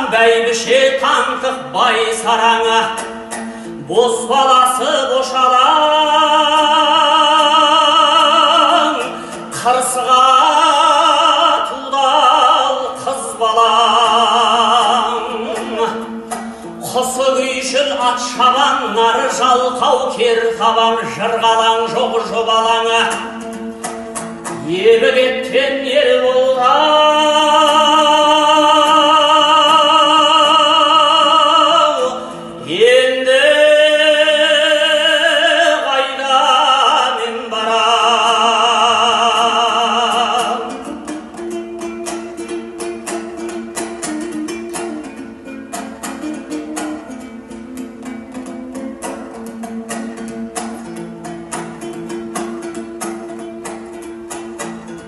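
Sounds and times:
dombra strumming: 0.0s - 55.0s
person singing long wavering notes: 3.8s - 16.2s.

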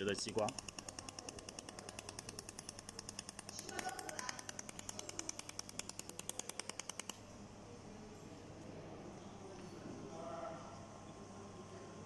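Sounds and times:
laser welder clicking: 0.0s - 7.2s.

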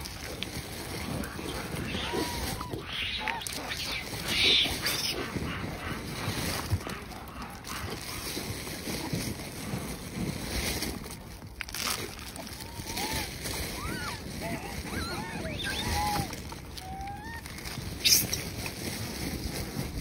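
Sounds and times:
monkeys calling and moving: 0.0s - 9.4s, 12.4s - 19.1s
shrill monkey squeals: 1.3s - 5.3s, 12.8s - 18.5s.

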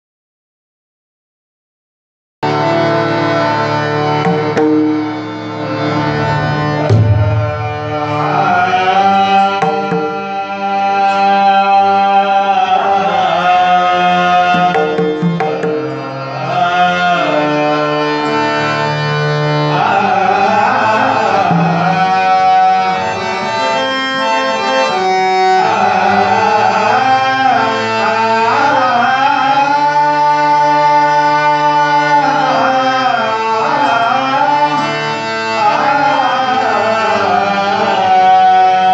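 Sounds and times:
hand drum: 4.2s - 5.1s, 6.9s - 7.9s, 9.6s - 10.3s, 14.5s - 16.0s
man singing devotional song: 5.7s - 38.9s.

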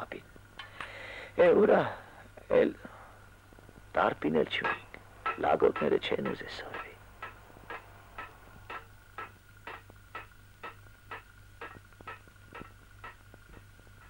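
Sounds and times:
clock ticking: 4.6s - 14.0s.

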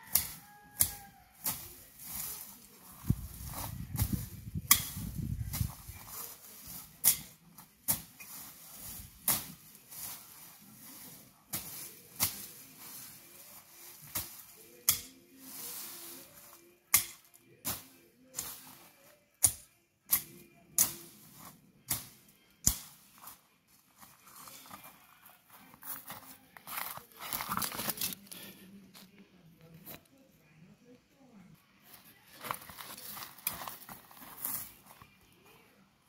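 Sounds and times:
soft rustling of grass: 0.0s - 19.3s, 20.5s - 36.0s
dry plant stalks snapping: 27.2s - 28.5s.

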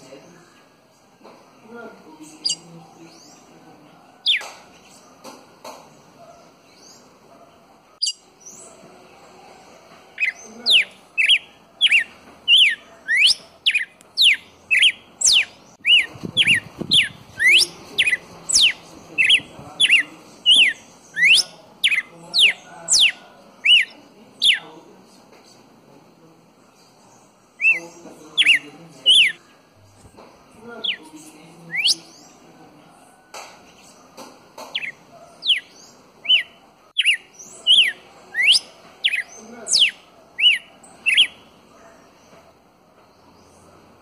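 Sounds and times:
bird chirping and whistling: 8.0s - 8.2s, 10.2s - 24.6s, 27.6s - 27.8s, 28.4s - 29.4s, 31.7s - 32.1s, 34.7s - 41.4s.

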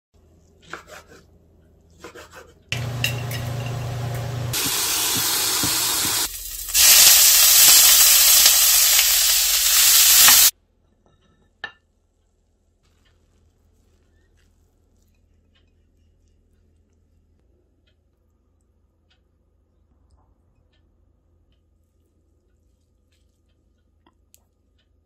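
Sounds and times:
greens sizzling in a pan: 2.8s - 10.5s.

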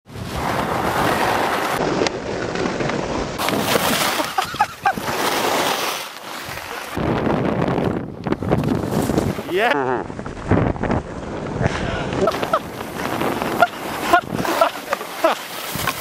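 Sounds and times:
wind rushing over microphone: 0.0s - 5.8s, 6.4s - 15.0s, 15.6s - 16.0s
skis scraping on snow: 0.1s - 7.0s, 8.5s - 9.5s, 11.2s - 16.0s.

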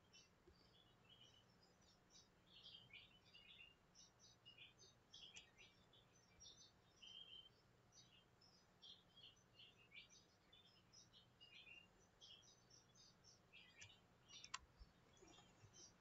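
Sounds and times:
faint birdsong chirps: 0.0s - 16.0s.

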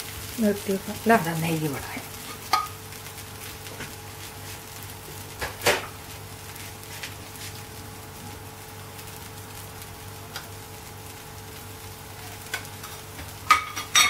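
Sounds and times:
kitchen utensils clinking: 13.5s - 14.0s.

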